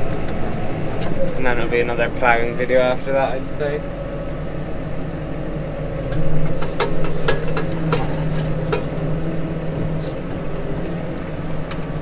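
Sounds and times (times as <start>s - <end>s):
tractor diesel engine running: 0.0s - 12.0s
sharp clicks and knocks: 6.0s - 9.0s.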